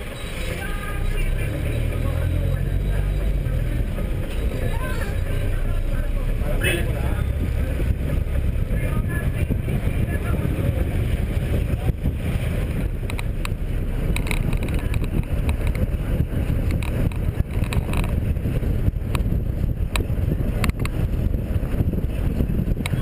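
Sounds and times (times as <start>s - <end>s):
vehicle road rumble: 0.0s - 23.0s
wind buffeting microphone: 0.9s - 23.0s
rattles and knocks: 12.7s - 18.3s.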